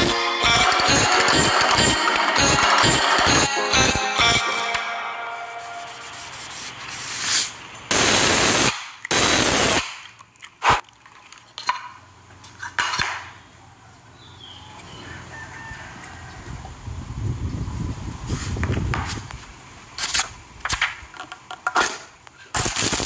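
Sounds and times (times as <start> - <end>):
short hissing sprays: 6.2 - 9.8.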